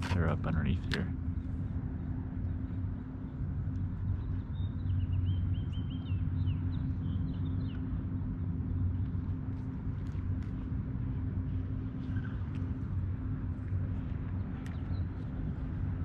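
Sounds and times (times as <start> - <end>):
bird chirping: 4.2 - 7.8.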